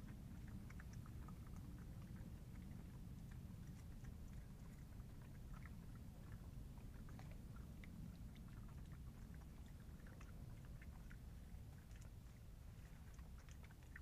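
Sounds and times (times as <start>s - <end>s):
badgers foraging and chewing: 0.0s - 14.0s
low background rumble: 0.0s - 14.0s.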